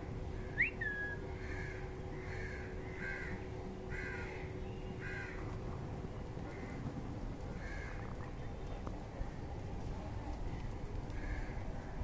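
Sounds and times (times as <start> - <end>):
harsh bird calls: 0.3 - 5.6
bird whistle: 0.5 - 1.2.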